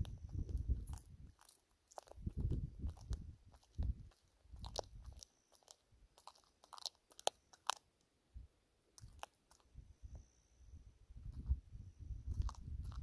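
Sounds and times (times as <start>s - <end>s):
animal crunching bites: 0.0s - 7.9s, 9.0s - 9.7s, 12.3s - 13.0s.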